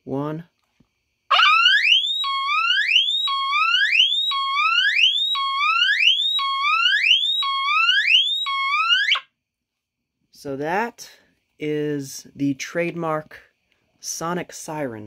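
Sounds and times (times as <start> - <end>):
smoke detector whoop tone: 1.3 - 9.2.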